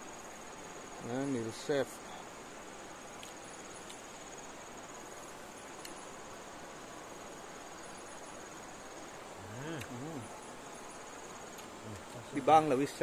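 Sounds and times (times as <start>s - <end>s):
background hiss: 0.0s - 13.0s
insect trilling: 0.0s - 13.0s
faint ticks: 3.1s - 4.1s, 5.6s - 6.1s, 9.6s - 10.0s, 11.5s - 12.2s.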